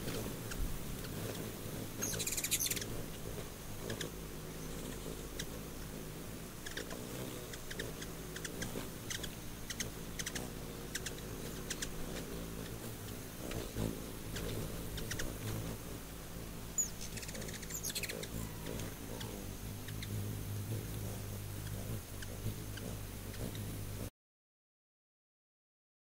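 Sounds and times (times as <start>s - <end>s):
hummingbird wingbeats humming: 0.0s - 24.1s
rapid bird chatter: 0.0s - 24.1s
high chip calls: 2.0s - 3.2s, 6.6s - 15.6s, 16.8s - 20.2s.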